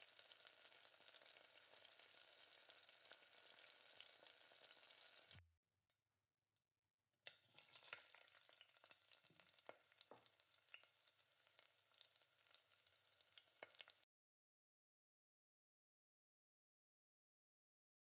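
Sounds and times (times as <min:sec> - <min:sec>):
curry sauce simmering and popping: 0:00.0 - 0:05.4, 0:07.2 - 0:14.1.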